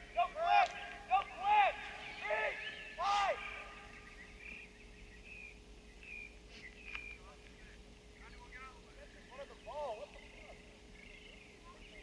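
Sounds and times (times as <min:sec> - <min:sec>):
outdoor background noise: 0:00.0 - 0:12.0
person shouting: 0:00.2 - 0:03.8.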